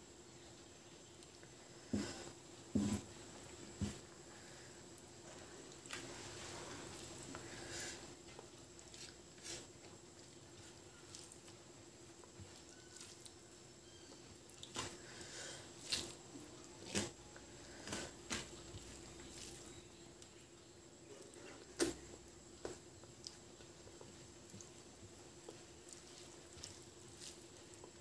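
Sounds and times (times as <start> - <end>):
fingers squishing food: 8.2 - 28.0.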